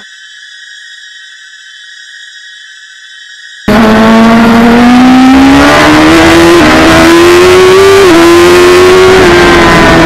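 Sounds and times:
motorcycle engine revving high: 0:03.7 - 0:10.0.

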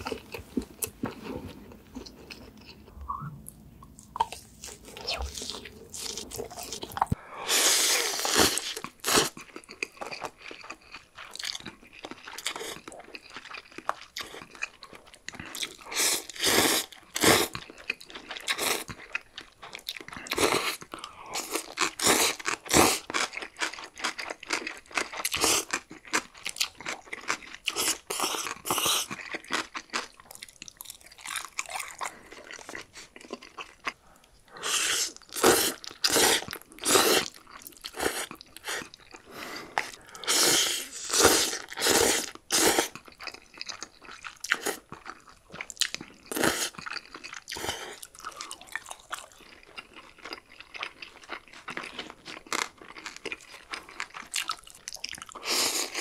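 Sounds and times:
chewing: 0:00.0 - 0:07.2, 0:08.1 - 0:56.0.

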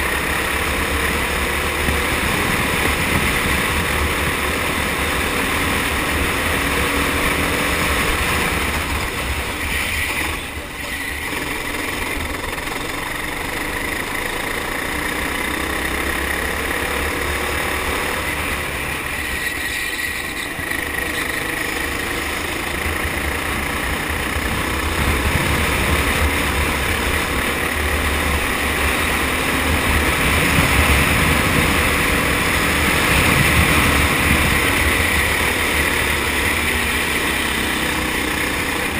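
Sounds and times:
kart engine at racing speed: 0:00.0 - 0:38.9
wind noise on camera: 0:01.7 - 0:05.0, 0:05.6 - 0:10.6, 0:24.4 - 0:27.4, 0:29.5 - 0:36.8.

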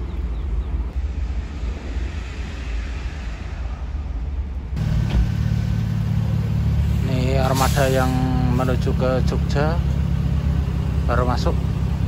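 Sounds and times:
traffic drone: 0:00.0 - 0:12.0
deep bus engine hum: 0:04.4 - 0:12.0.

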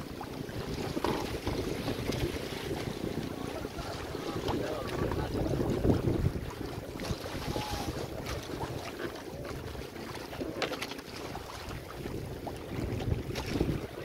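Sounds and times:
water rushing along hulls: 0:00.0 - 0:14.0
wind buffeting microphone: 0:00.0 - 0:14.0
small splashes and knocks: 0:00.6 - 0:02.9, 0:06.3 - 0:11.9, 0:12.5 - 0:14.0.

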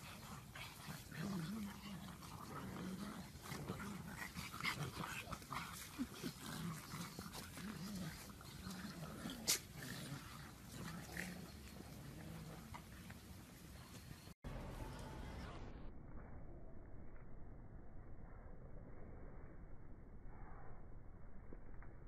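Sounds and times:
dogs growling: 0:00.0 - 0:14.4.

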